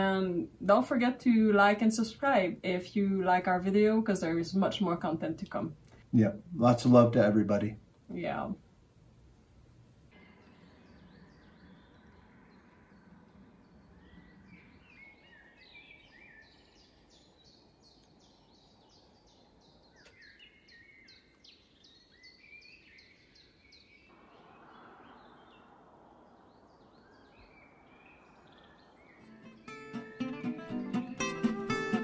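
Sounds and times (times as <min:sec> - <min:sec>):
soft outdoor hiss: 0:00.0 - 0:32.0
small birds chirping: 0:10.1 - 0:32.0.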